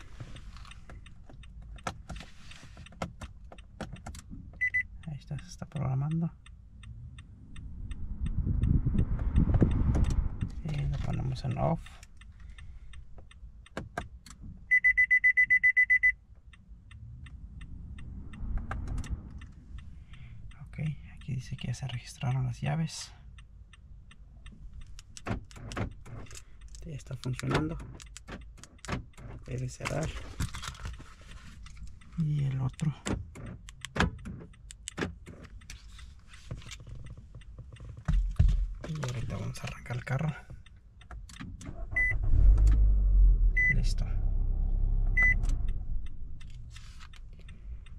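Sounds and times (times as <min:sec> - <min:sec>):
faint steady ticking: 0:00.0 - 0:47.9
heavy low thumps: 0:07.8 - 0:10.7.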